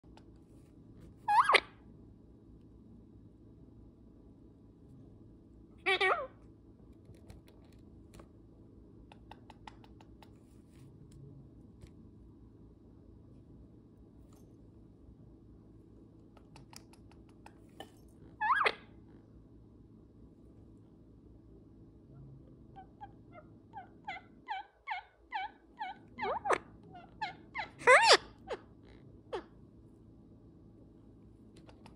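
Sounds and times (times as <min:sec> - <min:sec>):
parakeets chirping: 0:01.3 - 0:01.7, 0:18.4 - 0:18.8, 0:22.8 - 0:28.7.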